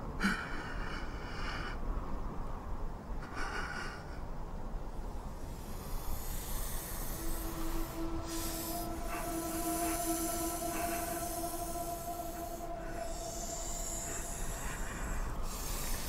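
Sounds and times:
low steady rumble: 4.9 - 16.0
sustained droning tone: 5.1 - 16.0.

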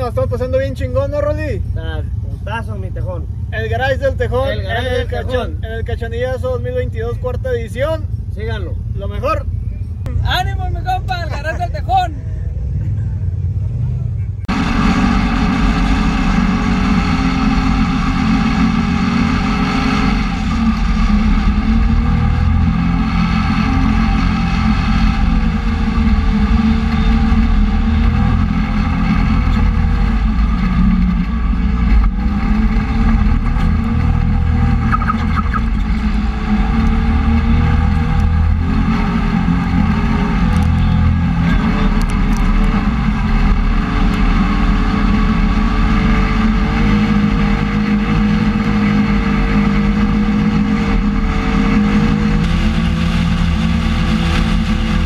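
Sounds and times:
utility vehicle engine revving: 12.4 - 55.0.

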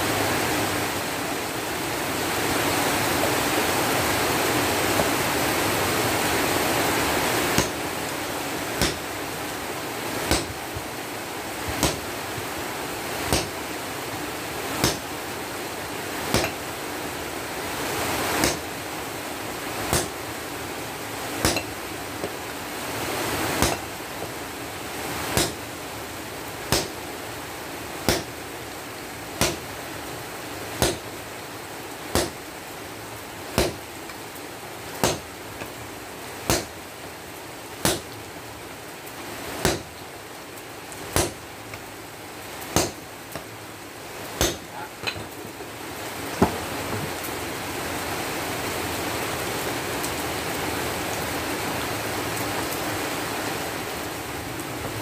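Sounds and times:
steady hiss: 0.0 - 55.0
sledgehammer striking steel on anvil: 7.6 - 7.8, 8.8 - 9.0, 10.3 - 10.6, 16.3 - 16.6, 18.4 - 18.6, 19.9 - 20.1, 21.4 - 21.8, 23.6 - 23.8, 25.4 - 25.6, 42.8 - 43.0, 44.4 - 45.2.

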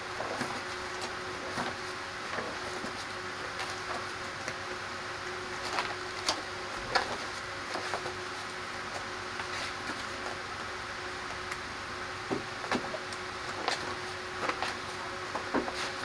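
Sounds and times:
stiff pages slapping and rustling: 5.5 - 8.2, 13.5 - 16.0.

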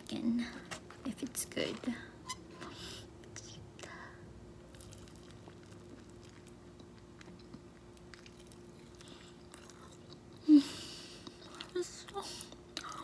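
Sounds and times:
faint steady hum: 0.0 - 13.0
biting and chewing chicken: 4.6 - 10.4.

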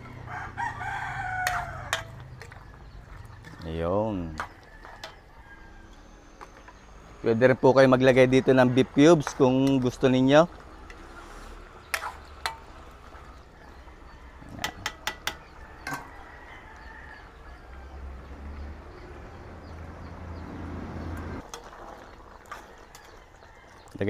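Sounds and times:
metal spatula clanking on wok: 1.4 - 2.3, 14.6 - 16.1.

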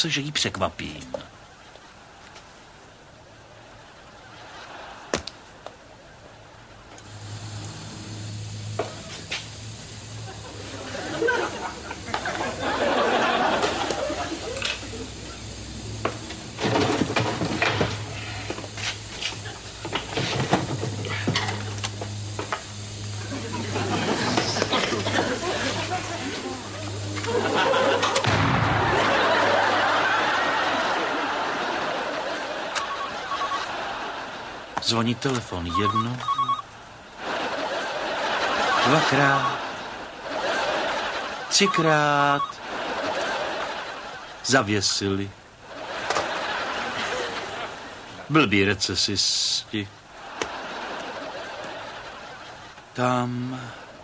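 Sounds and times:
audience laughing: 3.6 - 6.1, 7.0 - 48.6, 49.6 - 54.0
small motor humming: 7.0 - 28.2
explosion: 28.2 - 29.2.

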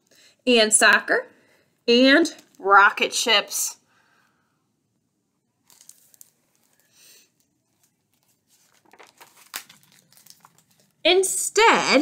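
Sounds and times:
paper pages rustling: 5.6 - 11.0.

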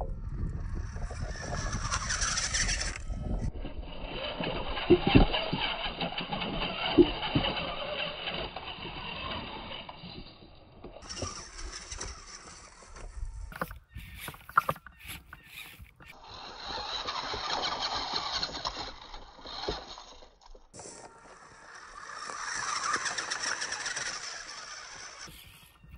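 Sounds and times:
toy car motor and gears whirring: 0.2 - 25.9
tyres clicking against rock: 10.9 - 25.9.

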